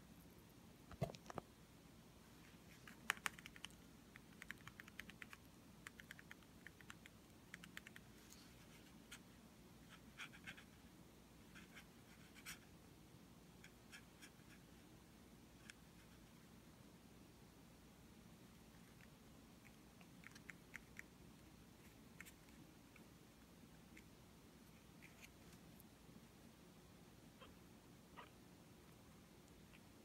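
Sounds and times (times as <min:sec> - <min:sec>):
kitten claws scratching fleece: 0:24.7 - 0:25.7.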